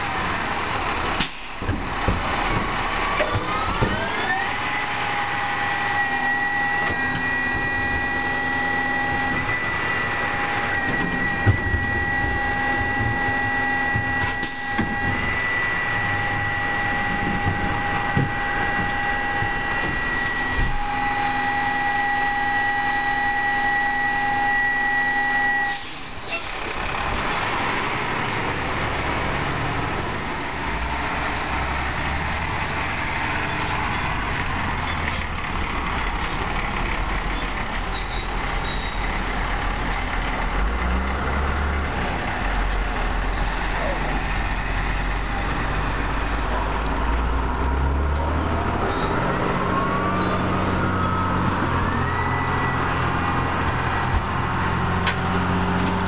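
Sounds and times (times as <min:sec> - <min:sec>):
diesel engine rumble: 0:00.0 - 0:56.0
hydraulic whine: 0:03.1 - 0:28.2.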